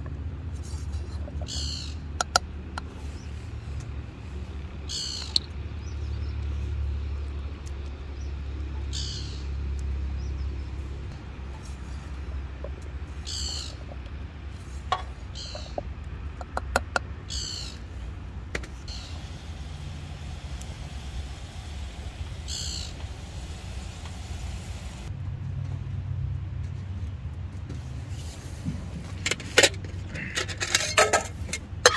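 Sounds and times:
gas stove burner humming: 18.8s - 25.1s.

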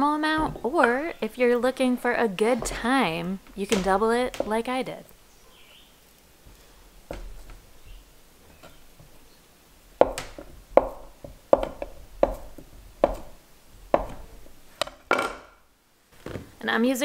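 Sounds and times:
knife chopping on cutting board: 10.0s - 13.4s, 14.0s - 14.3s.

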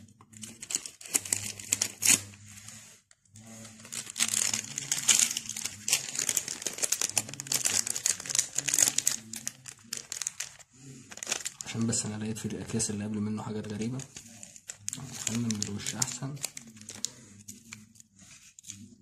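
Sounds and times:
foil sachet crinkling and tearing: 0.4s - 2.4s, 3.6s - 12.5s, 13.5s - 17.9s.

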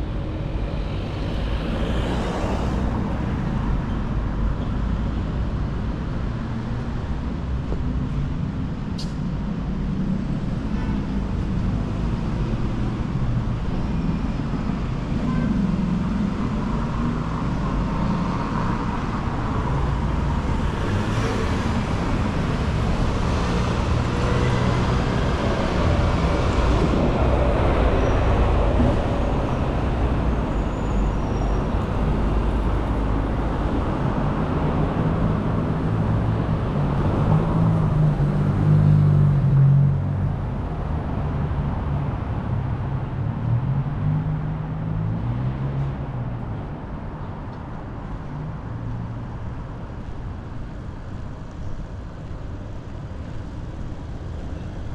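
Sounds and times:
cars driving past: 7.5s - 54.9s.

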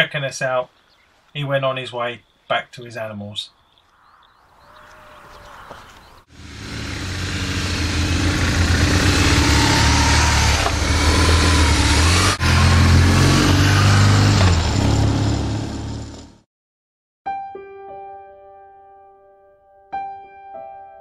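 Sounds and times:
motorcycle engines revving: 6.1s - 16.4s.

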